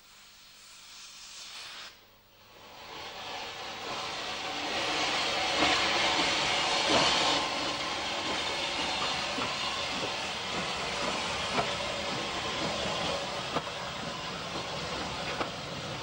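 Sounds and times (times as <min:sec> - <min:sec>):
steam hissing: 0:00.0 - 0:16.0
train wheels clicking over rail joints: 0:04.7 - 0:16.0.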